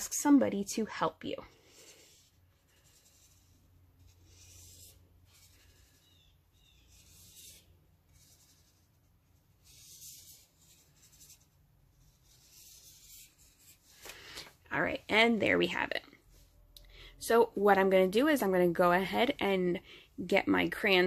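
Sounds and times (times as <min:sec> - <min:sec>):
marker scratching on paper: 0:00.2 - 0:14.1.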